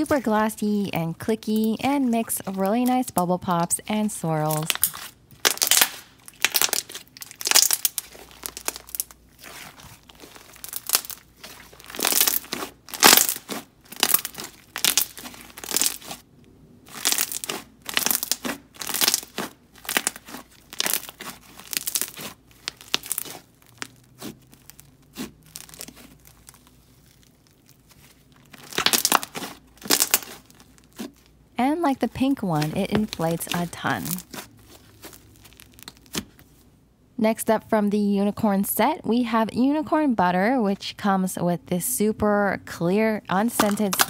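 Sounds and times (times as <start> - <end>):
slime squeezed by hand: 16.9 - 31.3.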